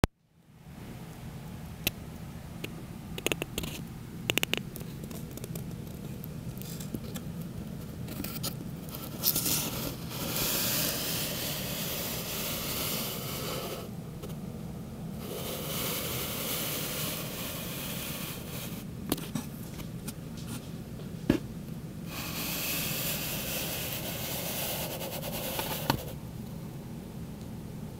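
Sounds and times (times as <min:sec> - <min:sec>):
low steady hum: 0:00.0 - 0:27.9
scraping and rustling: 0:08.0 - 0:14.4, 0:22.2 - 0:26.2.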